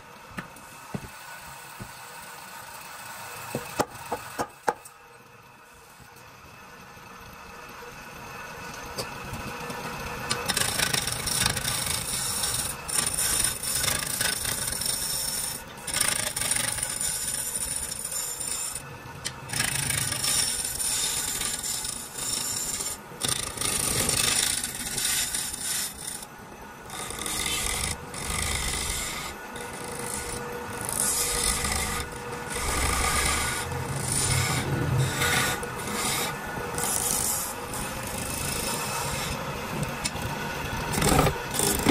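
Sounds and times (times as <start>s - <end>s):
chisel rasping wood on lathe: 10.3s - 26.3s, 26.9s - 39.4s, 40.7s - 41.9s.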